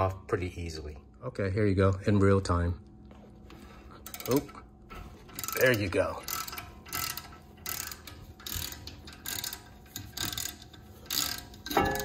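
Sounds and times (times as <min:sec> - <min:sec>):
hand ratchet clicking: 0:05.3 - 0:12.0.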